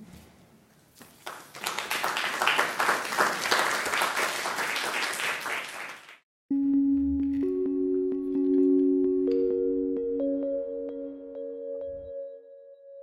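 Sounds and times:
audience applauding: 1.2s - 6.2s
held musical note: 6.5s - 13.0s.

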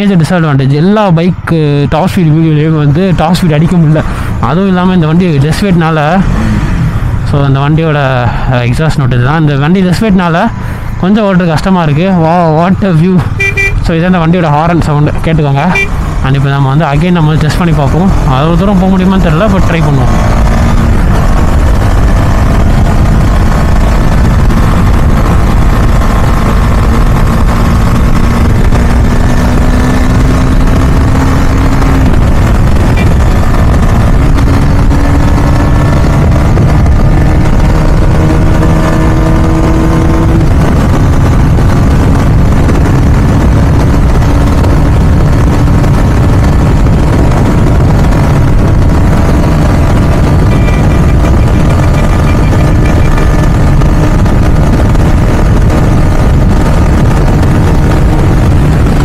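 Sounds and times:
heavy wind rush: 0.0s - 59.0s
motorcycle engine at high speed: 0.0s - 59.0s.

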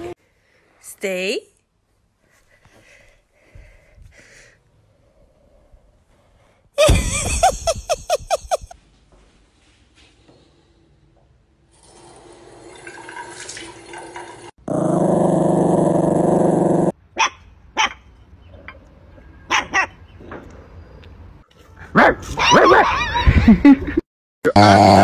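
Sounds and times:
water gushing from tap: 11.8s - 14.5s
dog growling: 14.7s - 16.9s
puppy barking: 17.2s - 18.1s, 19.5s - 20.0s, 21.9s - 23.1s.

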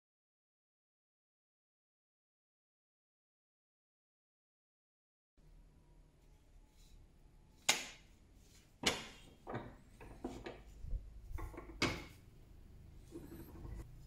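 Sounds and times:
light metal clanks: 13.0s - 13.9s.

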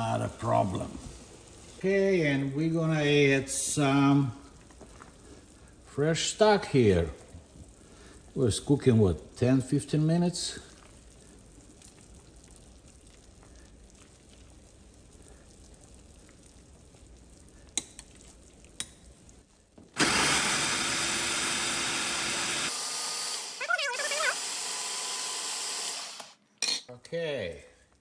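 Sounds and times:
food processor running: 20.0s - 26.4s.

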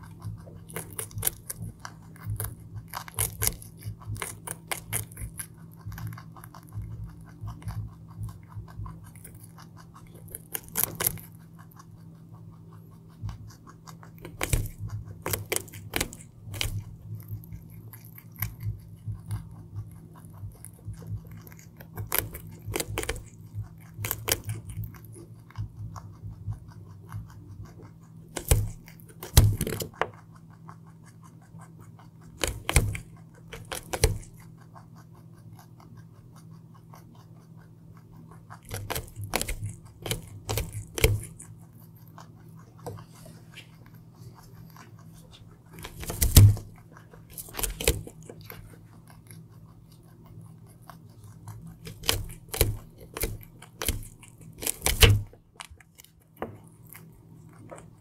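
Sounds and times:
faint low hum: 0.0s - 58.0s
rabbit chewing carrot: 0.0s - 58.0s.

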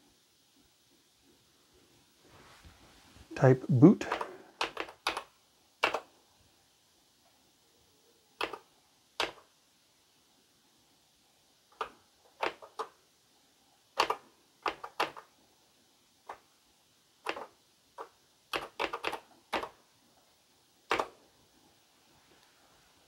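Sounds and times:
keyboard keystroke clicks: 8.4s - 9.4s.

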